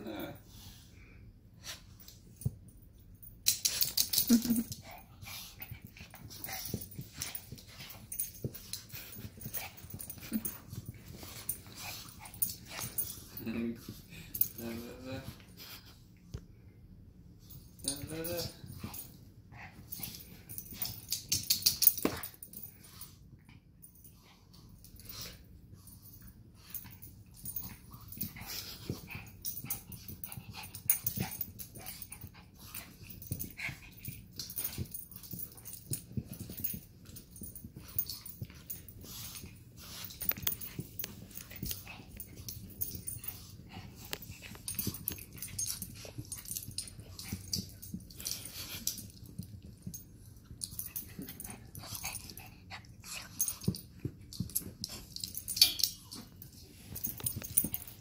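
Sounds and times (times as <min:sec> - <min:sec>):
dogs growling while play-fighting: 0:26.7 - 0:50.0, 0:50.6 - 0:58.0.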